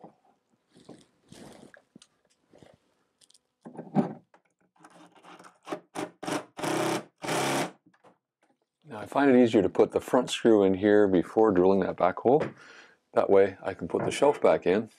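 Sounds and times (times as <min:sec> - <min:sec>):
impact driver driving screw: 0:05.6 - 0:07.7.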